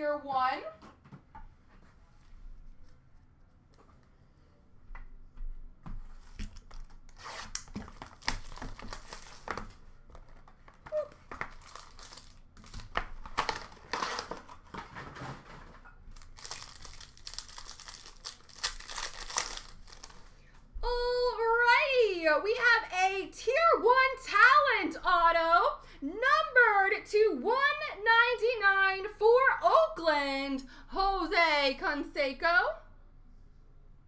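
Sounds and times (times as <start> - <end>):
plastic wrapping crinkling: 6.4 - 20.4.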